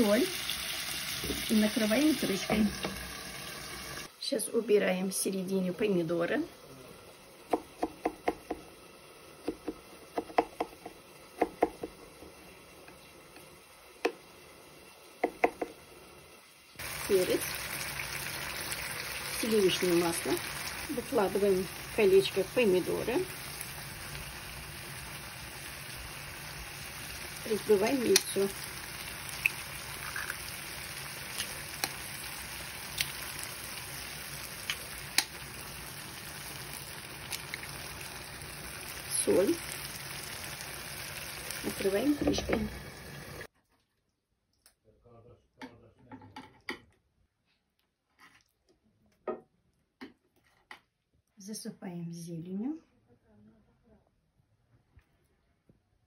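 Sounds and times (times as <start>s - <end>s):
food sizzling in a pan: 0.0s - 43.5s
knife tapping on cutting board: 7.5s - 8.6s, 9.4s - 12.0s, 15.2s - 15.7s
eggshells cracking: 29.3s - 30.5s, 32.9s - 33.3s, 37.2s - 37.8s.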